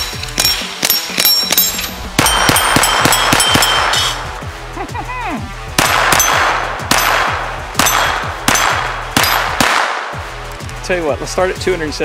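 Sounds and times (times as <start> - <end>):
steel target ringing: 0.0 - 4.2, 5.8 - 9.6
background music with bass: 0.0 - 12.0
suppressed pistol shots: 0.4 - 4.2, 5.8 - 10.2.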